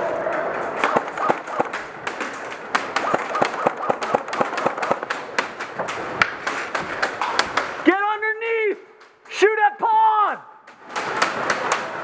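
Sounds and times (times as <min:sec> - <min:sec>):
airsoft gunfire clacks: 0:00.8 - 0:07.9.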